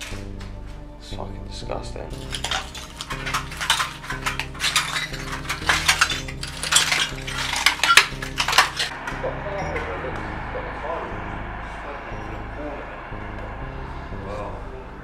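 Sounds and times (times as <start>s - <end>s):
footsteps crunching on broken glass: 2.2s - 8.9s.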